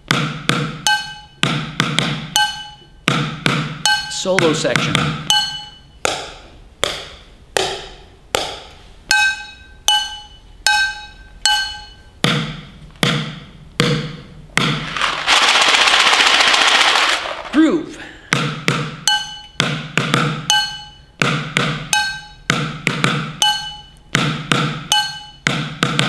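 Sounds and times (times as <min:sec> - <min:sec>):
drumsticks striking kitchen items: 0:00.0 - 0:15.5
dry pasta rattling in box: 0:14.9 - 0:17.5.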